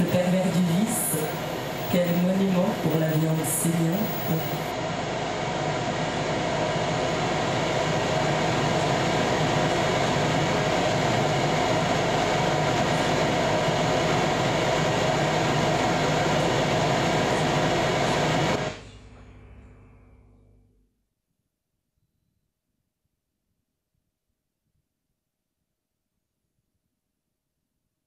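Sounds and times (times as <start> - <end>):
faint hum: 0.0 - 21.0.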